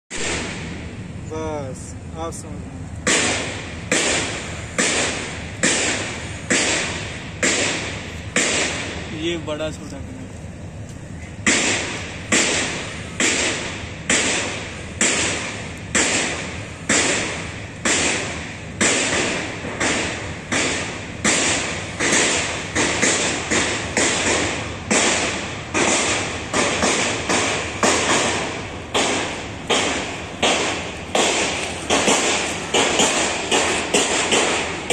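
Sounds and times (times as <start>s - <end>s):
footsteps: 25.8s - 34.9s.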